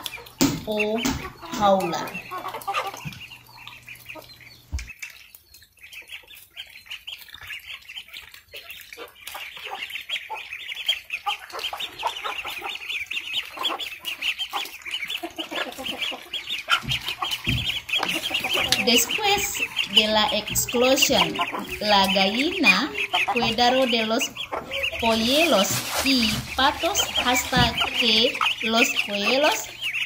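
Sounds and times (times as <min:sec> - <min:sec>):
ducklings peeping: 0:00.0 - 0:30.0.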